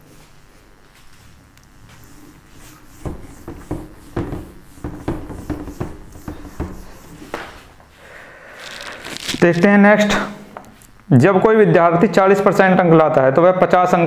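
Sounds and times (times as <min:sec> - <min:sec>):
cloth wiping a whiteboard: 0:01.8 - 0:07.8.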